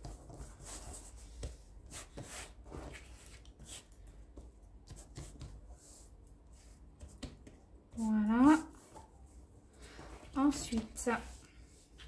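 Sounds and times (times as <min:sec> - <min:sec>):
hands rubbing and patting dough: 0:00.0 - 0:12.0.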